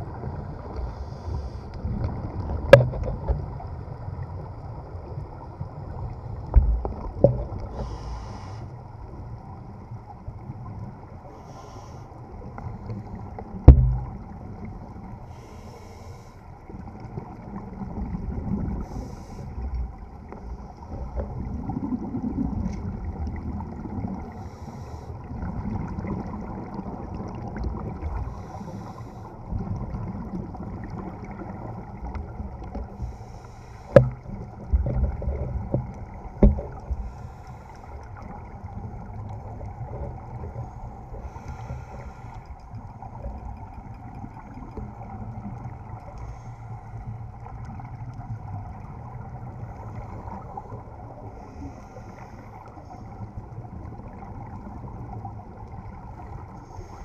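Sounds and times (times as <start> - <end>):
underwater regulator bubbles: 6.4 - 8.6, 12.7 - 15.0, 17.0 - 33.2, 33.8 - 46.6.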